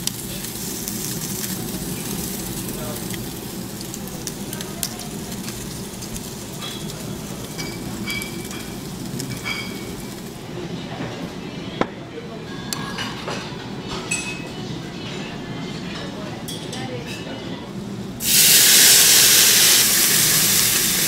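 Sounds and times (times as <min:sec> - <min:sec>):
pork sizzling: 0:00.0 - 0:10.4, 0:18.2 - 0:21.0
utensils clinking: 0:06.5 - 0:10.4.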